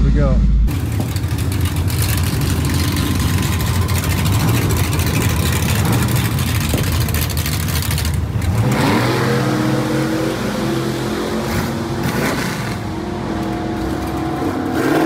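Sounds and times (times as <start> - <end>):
car engine rough exhaust idling: 0.4 - 8.7.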